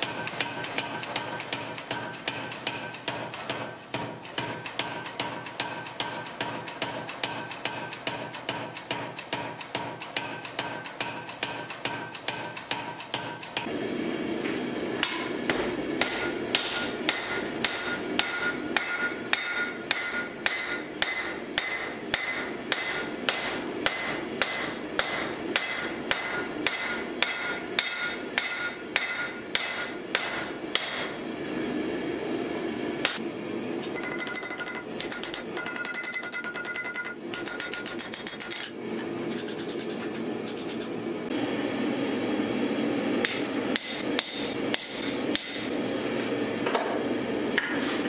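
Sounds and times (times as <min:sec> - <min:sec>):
hammer striking steel on anvil: 0:00.0 - 0:13.7, 0:15.0 - 0:31.2, 0:33.9 - 0:38.8, 0:43.2 - 0:45.7.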